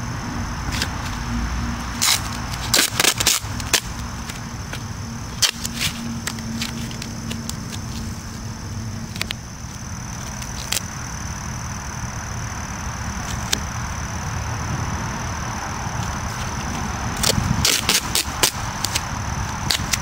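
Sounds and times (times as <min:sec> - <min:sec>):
adhesive tape tearing: 0:01.9 - 0:08.4, 0:09.1 - 0:10.9, 0:17.2 - 0:20.0
tape crackling when pressed: 0:01.9 - 0:11.0, 0:16.0 - 0:20.0.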